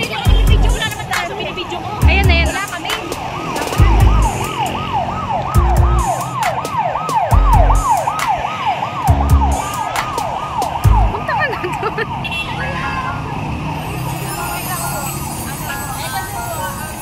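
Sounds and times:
ambulance siren: 0.0s - 17.0s
short low thumps: 3.8s - 4.3s, 5.6s - 6.1s, 7.3s - 7.9s, 10.8s - 11.1s.

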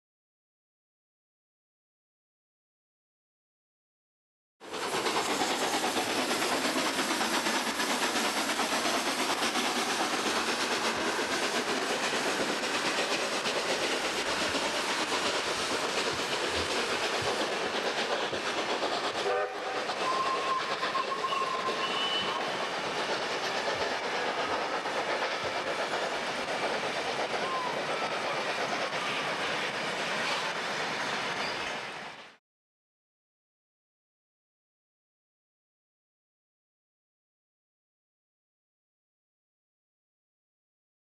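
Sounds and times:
train wheels rattling on rails: 4.6s - 32.4s
faint whistle-like tones: 19.2s - 31.9s.

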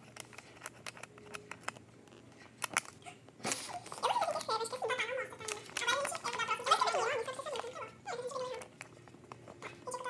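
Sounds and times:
person speaking: 3.0s - 10.0s.

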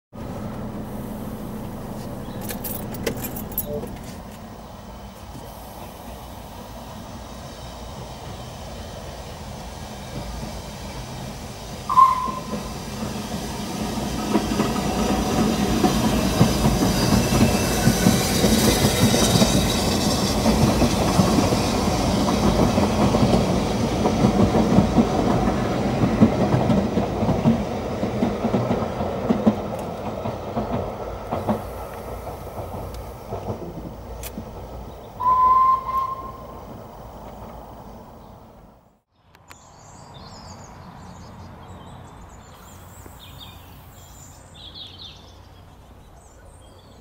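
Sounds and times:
steam train passing: 0.2s - 39.1s
short high train whistle: 11.9s - 12.9s, 35.2s - 36.7s.

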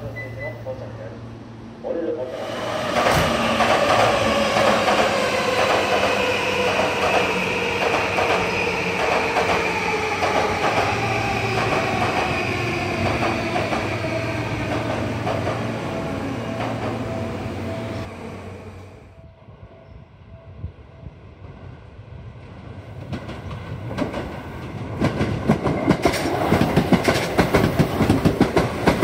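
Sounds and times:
train wheel clatter: 23.0s - 29.0s.

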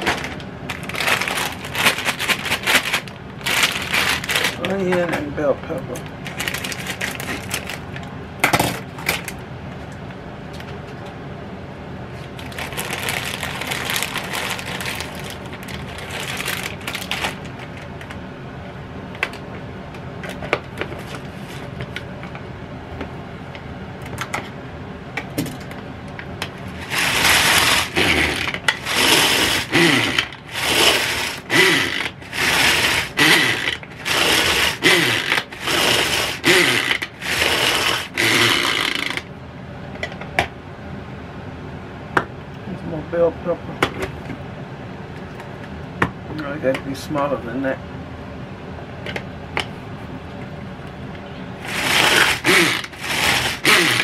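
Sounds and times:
onion chopper clattering: 0.0s - 5.3s, 26.7s - 39.3s, 51.6s - 54.0s
clicks and handling rustles: 0.0s - 8.1s.

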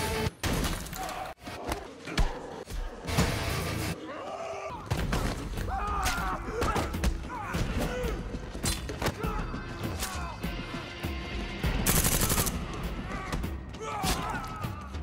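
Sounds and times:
action film music: 0.0s - 0.4s, 1.1s - 15.0s
gunshots: 11.7s - 12.6s.

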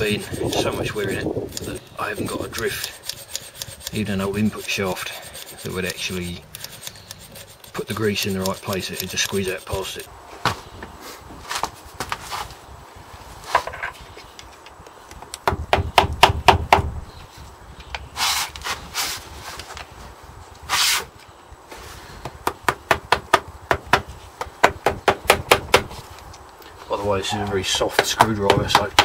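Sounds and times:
screwdriver scraping metal: 0.0s - 10.1s
sharp metallic clicks: 0.5s - 10.0s.

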